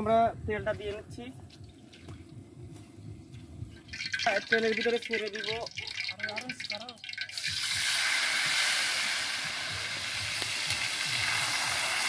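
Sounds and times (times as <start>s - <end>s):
hot oil sizzling in a wok: 3.9s - 12.0s.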